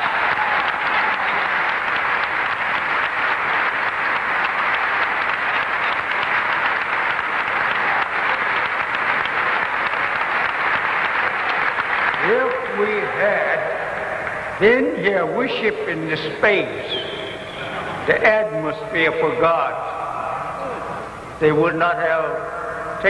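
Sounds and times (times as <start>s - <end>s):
audience applauding: 0.0s - 14.6s.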